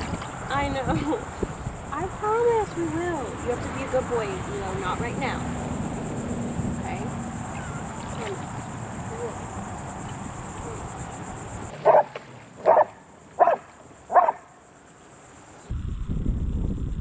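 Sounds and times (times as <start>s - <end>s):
dog barking: 11.8s - 14.5s.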